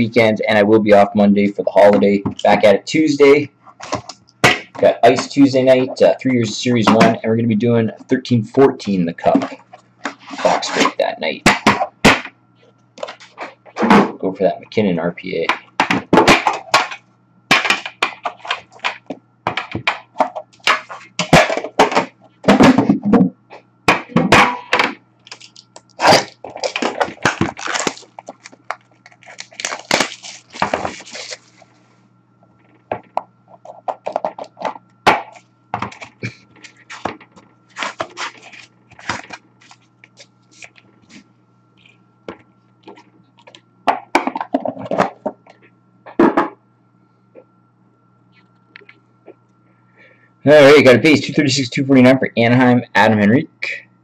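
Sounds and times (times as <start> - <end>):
packaging rustling: 25.2 - 31.8, 32.6 - 43.6.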